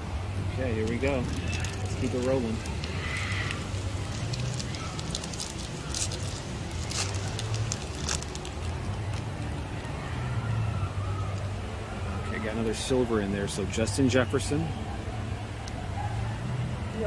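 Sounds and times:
foil wrapper crinkling and tearing: 0:00.7 - 0:09.9.

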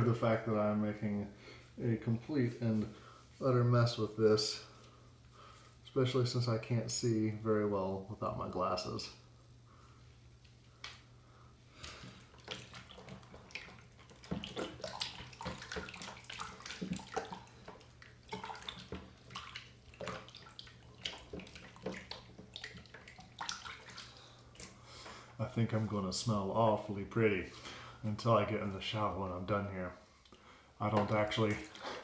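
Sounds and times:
low room hum: 0:00.0 - 0:32.0
running water: 0:11.8 - 0:24.8, 0:30.8 - 0:32.0
water splashing on hands: 0:12.0 - 0:24.8.

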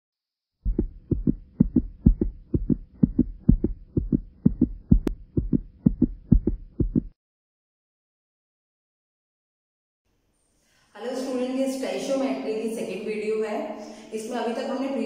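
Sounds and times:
heartbeat-like thumps: 0:00.6 - 0:07.2.

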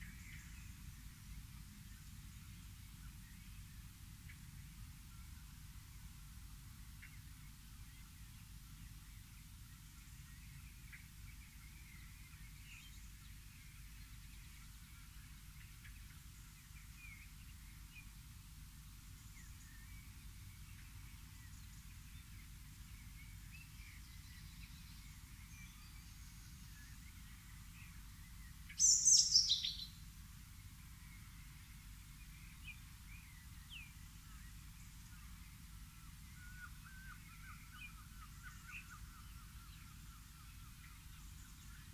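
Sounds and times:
low background noise: 0:00.0 - 0:41.9
songbirds chirping: 0:00.0 - 0:41.9
quick high bird calls: 0:28.8 - 0:29.8.

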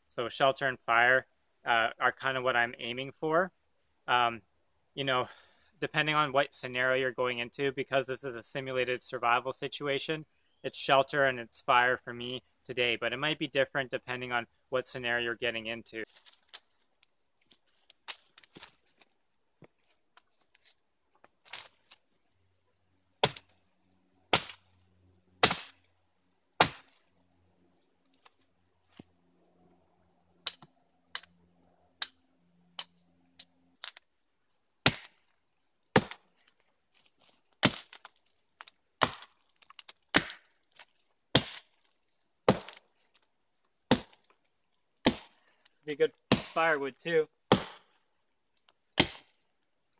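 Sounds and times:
axe chopping log: 0:23.2 - 0:23.5, 0:24.3 - 0:24.6, 0:25.4 - 0:25.8, 0:26.6 - 0:27.0, 0:34.8 - 0:35.2, 0:35.9 - 0:36.3, 0:37.6 - 0:40.5, 0:41.3 - 0:41.7, 0:42.4 - 0:42.9, 0:43.9 - 0:44.3, 0:45.0 - 0:45.4, 0:46.3 - 0:46.7, 0:47.5 - 0:47.9, 0:49.0 - 0:49.4.

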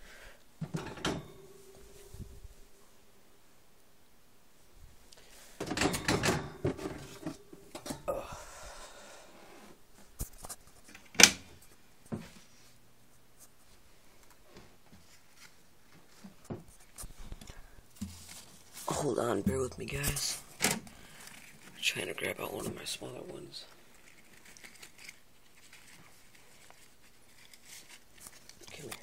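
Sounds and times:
plastic tubs rustling and knocking: 0:00.6 - 0:02.0, 0:05.4 - 0:08.1, 0:15.9 - 0:21.8.

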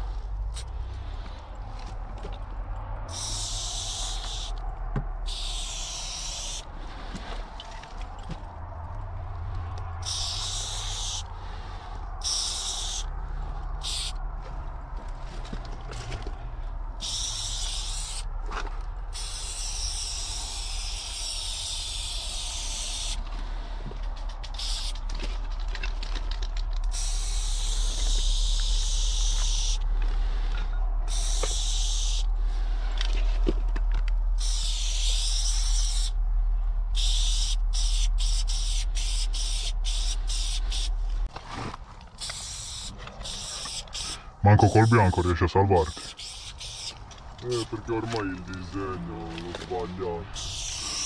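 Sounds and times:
steady low rumble: 0:00.0 - 0:17.0, 0:44.4 - 0:45.9
spray paint can hissing: 0:03.1 - 0:04.6, 0:05.3 - 0:06.6, 0:10.0 - 0:11.2, 0:12.2 - 0:13.1, 0:13.8 - 0:14.2, 0:17.0 - 0:18.3, 0:19.1 - 0:23.2, 0:24.5 - 0:25.0, 0:26.8 - 0:29.8, 0:31.1 - 0:32.3, 0:34.4 - 0:36.2, 0:37.0 - 0:40.9, 0:42.2 - 0:44.1, 0:45.8 - 0:47.0, 0:50.4 - 0:51.0.

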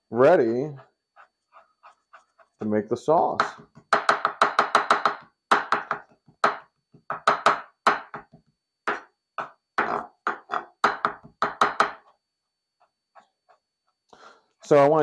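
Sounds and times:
knife chopping on cutting board: 0:03.4 - 0:08.3.

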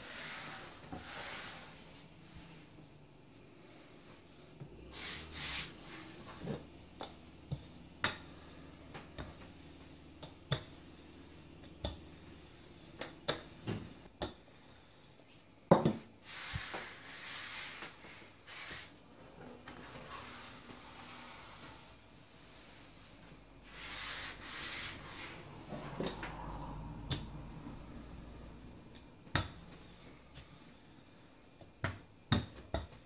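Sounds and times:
dough rubbing and rustling: 0:00.0 - 0:06.8, 0:16.2 - 0:26.8.

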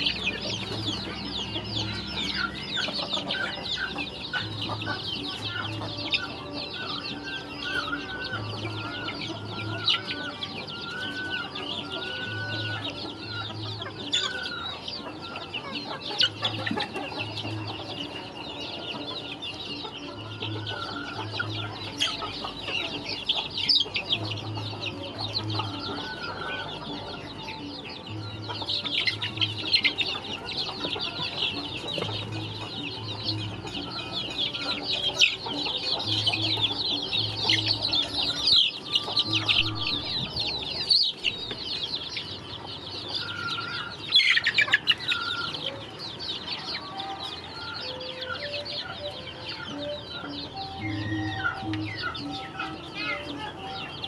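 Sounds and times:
chicks peeping and cheeping: 0:00.0 - 0:54.0.

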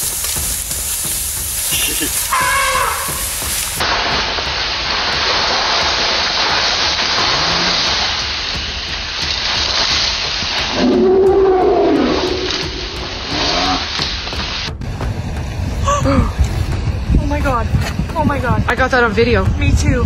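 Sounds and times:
rustling of brush: 0:00.0 - 0:15.6
elephant call: 0:01.7 - 0:03.6, 0:10.7 - 0:13.9.

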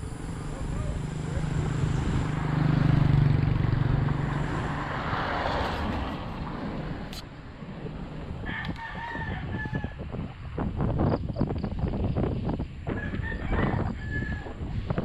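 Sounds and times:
rushing road travel noise: 0:00.0 - 0:15.0
rooster crowing: 0:08.4 - 0:10.1, 0:12.9 - 0:14.6.

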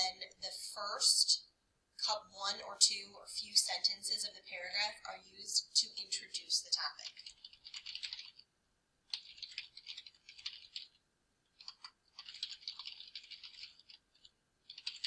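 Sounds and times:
computer keyboard typing: 0:05.9 - 0:08.5, 0:09.1 - 0:15.0.

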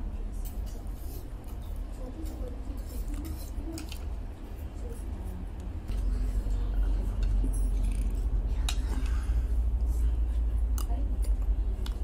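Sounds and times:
steady low rumble: 0:04.0 - 0:12.0.

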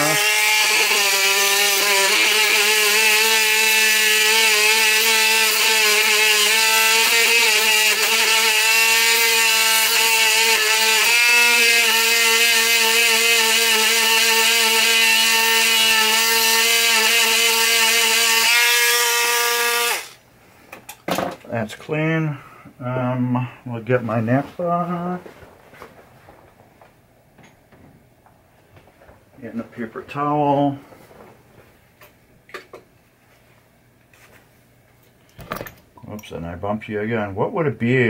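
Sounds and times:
rotary tool whining: 0:04.6 - 0:20.2.

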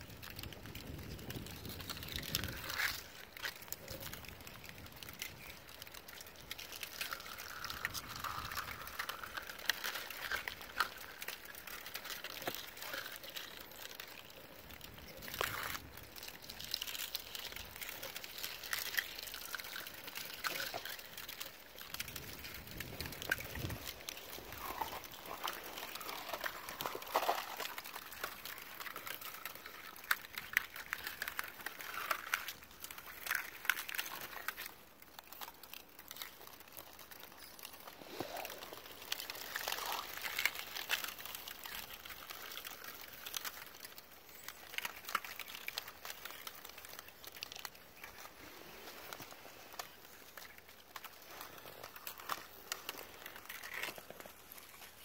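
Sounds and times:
ice crackling and clinking: 0:00.0 - 0:55.0
ice grinding against rocks: 0:00.0 - 0:55.0.

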